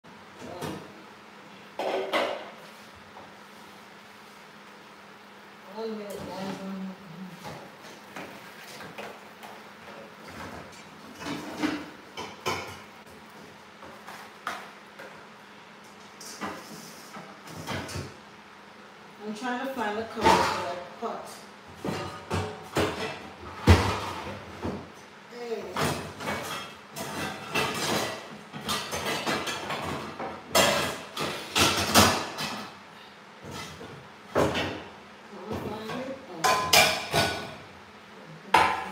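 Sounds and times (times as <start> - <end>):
pots and lids clattering: 1.8 - 2.6, 10.3 - 12.9, 21.8 - 24.8, 25.8 - 32.8, 35.9 - 37.6.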